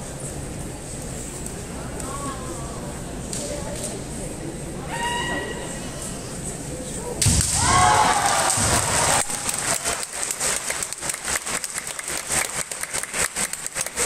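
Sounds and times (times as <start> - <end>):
spectators applauding: 7.7 - 14.0.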